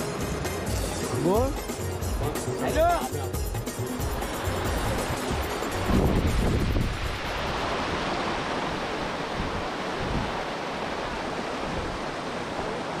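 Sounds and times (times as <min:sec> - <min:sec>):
wind buffeting microphone: 0:04.0 - 0:12.8.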